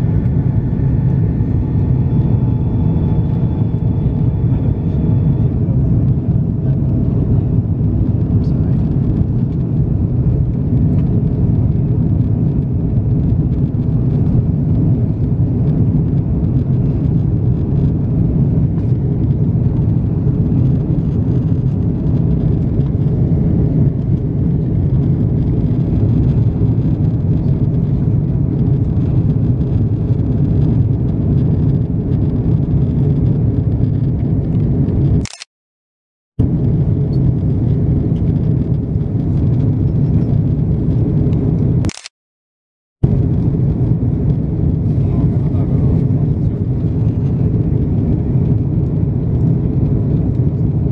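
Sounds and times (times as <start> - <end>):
airplane cabin engine rumble: 0.0 - 35.5, 36.4 - 42.1, 43.0 - 50.9.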